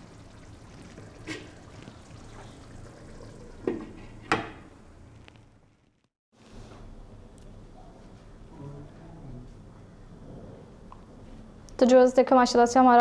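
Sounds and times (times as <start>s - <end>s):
gravy bubbling: 0.0s - 6.1s.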